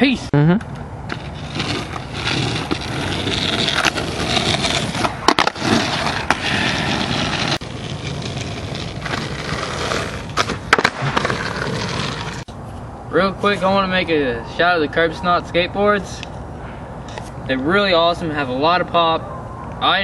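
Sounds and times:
skateboard wheels rolling on pavement: 0.7s - 16.2s
skateboard clacks: 1.1s - 12.4s.

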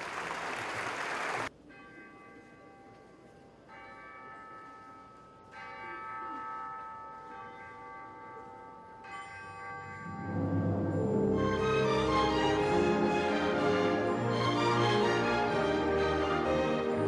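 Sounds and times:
tubular bells ringing: 3.7s - 17.0s.

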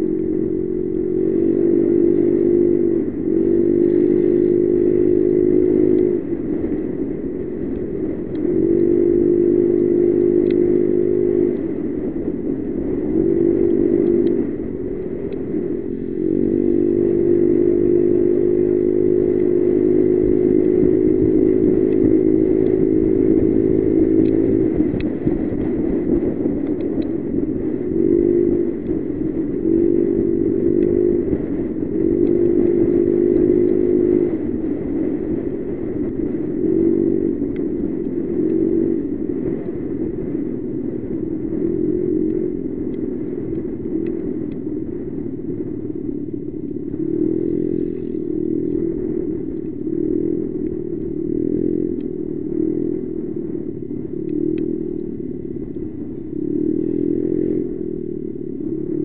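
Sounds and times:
motorcycle engine running: 0.0s - 59.0s
faint ticks: 3.8s - 6.9s, 7.6s - 11.8s, 12.6s - 16.0s, 16.8s - 27.2s, 28.1s - 34.4s, 36.0s - 38.8s, 41.5s - 45.3s, 46.6s - 57.7s.

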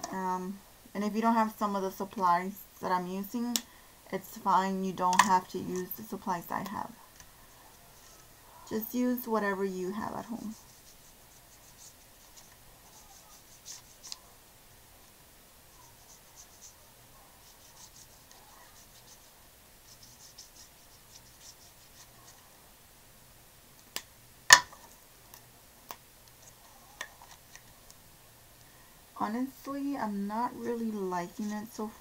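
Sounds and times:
brush scratching on paper: 10.0s - 14.3s, 15.7s - 22.5s.

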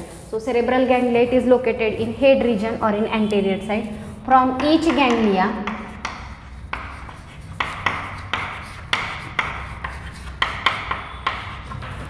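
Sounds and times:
chalk writing on chalkboard: 0.0s - 0.8s, 3.7s - 12.0s.

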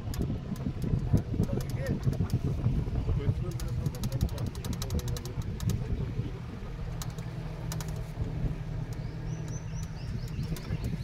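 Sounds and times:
vehicle engine and road rumble: 0.0s - 11.0s
rapid high clicking: 3.4s - 5.8s
bird chirping: 8.8s - 11.0s.

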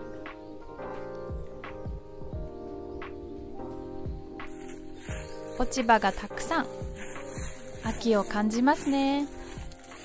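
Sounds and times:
low steady beat: 0.0s - 10.0s.

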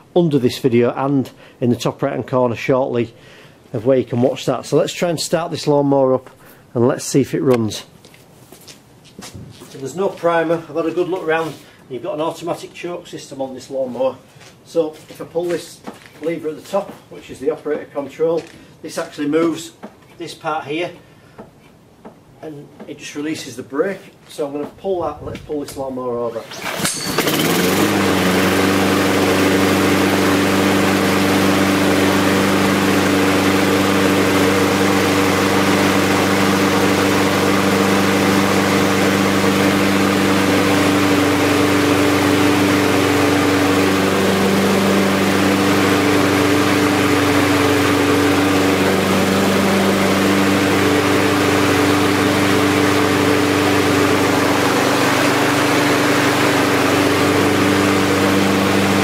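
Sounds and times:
lawnmower engine running: 26.4s - 59.0s.

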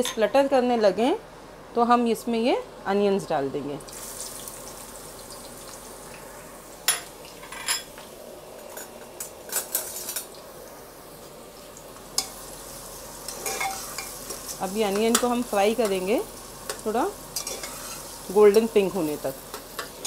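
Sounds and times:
onions sizzling in oil: 3.8s - 20.0s
metal spatula scraping pot: 13.3s - 14.1s, 17.4s - 18.1s.

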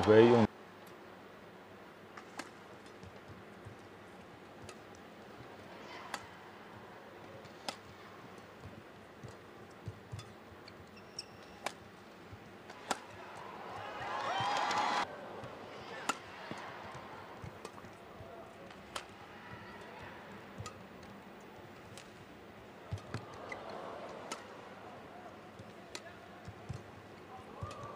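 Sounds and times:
low arena hum: 0.0s - 27.9s
racket striking shuttlecock: 11.2s - 11.9s, 12.6s - 14.0s, 15.9s - 16.6s, 20.6s - 20.9s.

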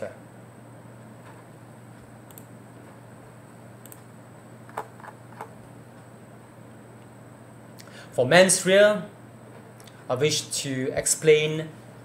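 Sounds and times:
low room hum: 0.0s - 12.0s
light computer clicks: 2.3s - 2.5s, 3.8s - 4.1s.

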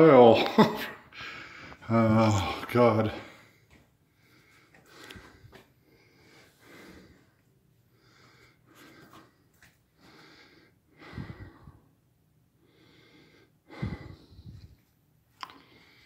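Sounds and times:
man breathing heavily: 1.1s - 16.0s.

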